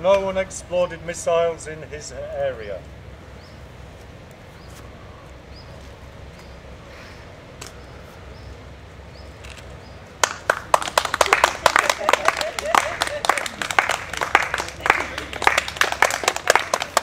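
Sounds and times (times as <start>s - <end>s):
audience clapping: 10.2s - 17.0s.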